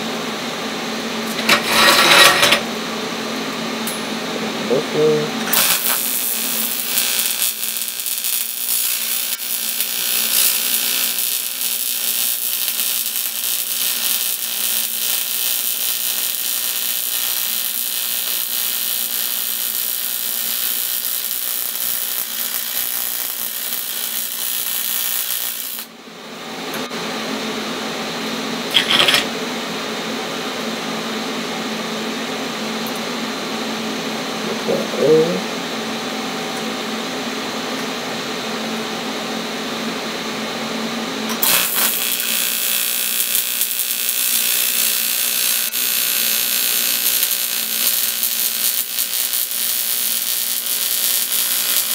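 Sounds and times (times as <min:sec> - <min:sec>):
welding arc buzzing hiss: 0:01.1 - 0:02.8, 0:03.8 - 0:26.0, 0:28.7 - 0:29.4, 0:41.3 - 0:51.9.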